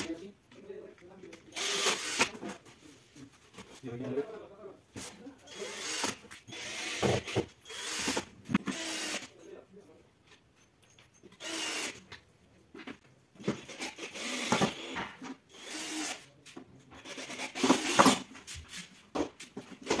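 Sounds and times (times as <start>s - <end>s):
cordless drill driving screws: 1.5s - 2.4s, 5.5s - 9.3s, 11.4s - 12.1s, 13.4s - 16.3s, 17.0s - 18.2s.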